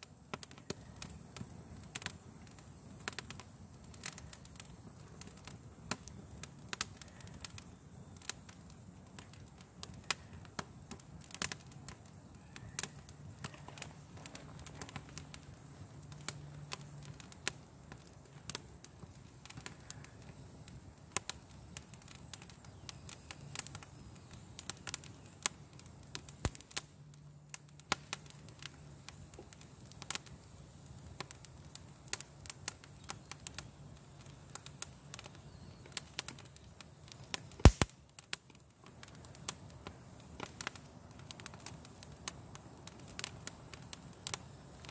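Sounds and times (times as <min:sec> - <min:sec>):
twig fire crackling and popping: 0:00.0 - 0:44.9
sharp snaps: 0:37.6 - 0:38.2.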